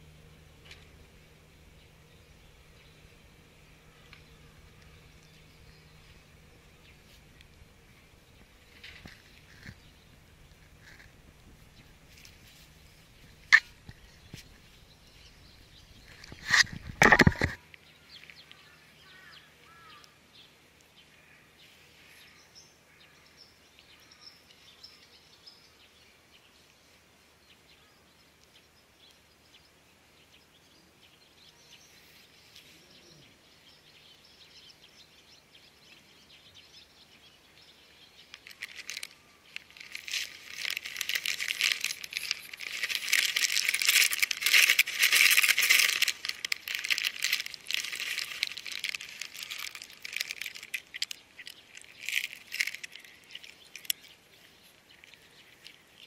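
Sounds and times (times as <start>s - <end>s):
faint bird chirps: 17.5s - 44.5s
plastic packet crinkling: 38.3s - 54.2s.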